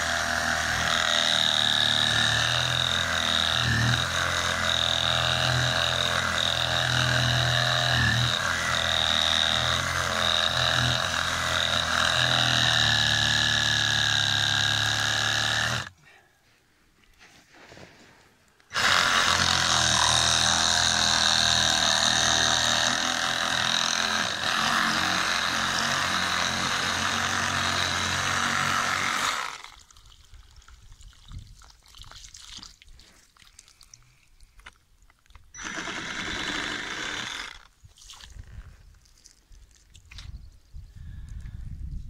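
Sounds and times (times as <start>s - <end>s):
reciprocating saw cutting plastic pipe: 0.0s - 15.9s, 18.7s - 29.8s, 35.6s - 37.7s.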